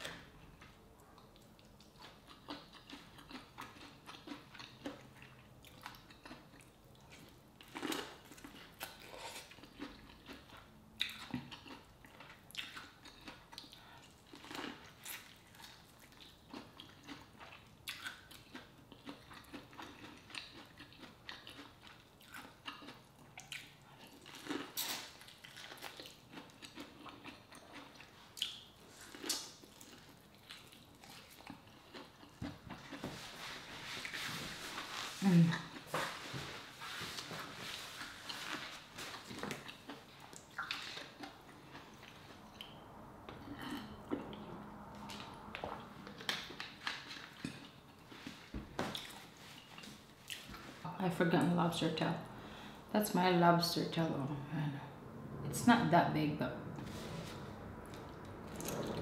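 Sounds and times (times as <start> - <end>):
biting and chewing corn: 1.6 - 33.0.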